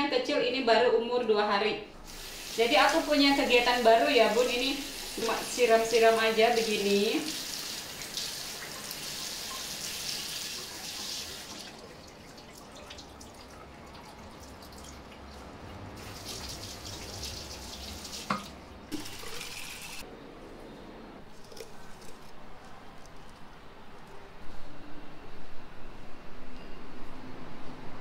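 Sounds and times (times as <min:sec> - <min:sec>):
tap water running into sink: 0:02.1 - 0:15.4, 0:16.0 - 0:20.0.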